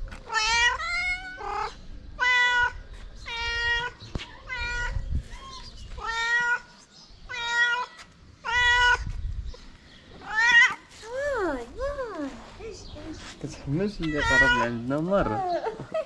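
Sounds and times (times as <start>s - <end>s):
cat meowing: 0.3s - 6.7s, 7.3s - 9.1s, 10.2s - 10.8s, 14.0s - 15.5s.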